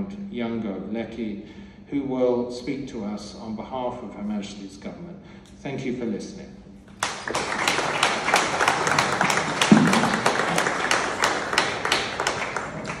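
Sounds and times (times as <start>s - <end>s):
sharp close claps: 6.9s - 13.0s
audience applauding: 7.0s - 13.0s.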